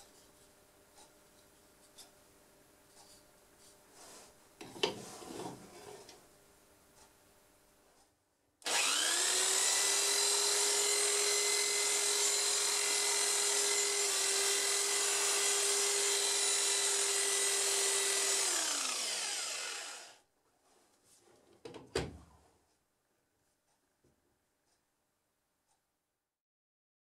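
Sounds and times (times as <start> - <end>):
electric drill whining: 8.6 - 20.2.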